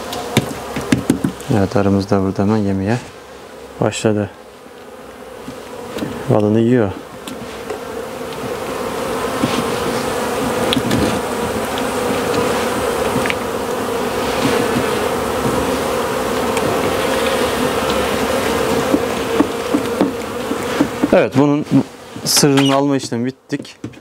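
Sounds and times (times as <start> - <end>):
bees buzzing: 0.0 - 24.0.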